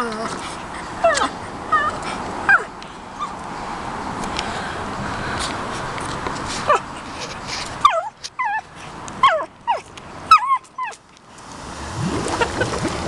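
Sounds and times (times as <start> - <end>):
dog yipping and whining barks: 1.0 - 3.3, 7.8 - 11.0.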